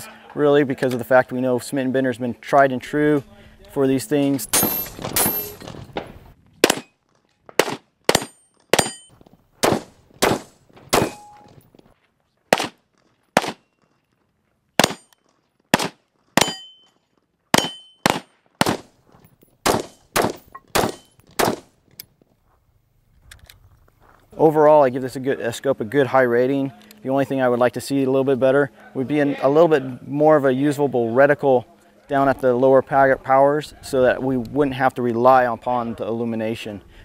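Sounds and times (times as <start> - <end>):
metallic ring of steel target: 4.4 - 5.7, 8.1 - 9.2, 11.0 - 11.6, 16.4 - 17.0, 17.6 - 18.3, 19.7 - 21.2
rifle shots: 6.6 - 6.9, 7.6 - 9.0, 9.6 - 11.4, 12.5 - 12.8, 13.4 - 13.7, 14.8 - 16.7, 17.5 - 18.9, 19.6 - 21.7.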